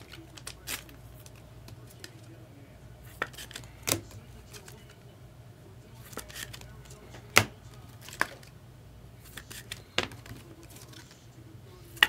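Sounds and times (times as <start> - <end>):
faint low hum: 0.0 - 12.0
trading cards clicking on table: 9.3 - 11.2.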